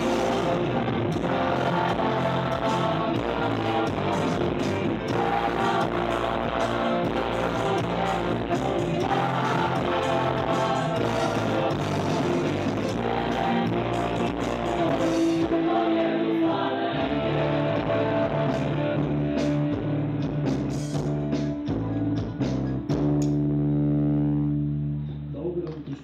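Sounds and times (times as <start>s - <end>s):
people singing: 0.0s - 20.7s
worship band playing: 0.0s - 22.1s.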